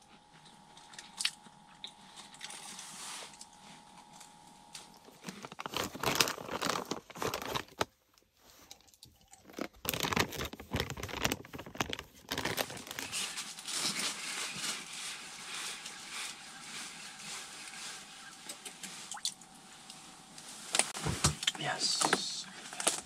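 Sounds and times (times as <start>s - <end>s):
plastic pouch crinkling: 5.0s - 8.0s, 8.6s - 19.2s.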